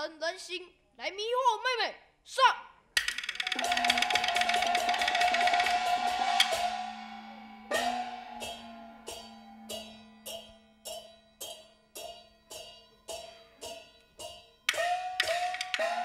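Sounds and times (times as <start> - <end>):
fast percussion roll: 3.0 - 9.3, 14.7 - 16.0
low held tone: 3.4 - 15.2
small gong struck: 3.6 - 14.4.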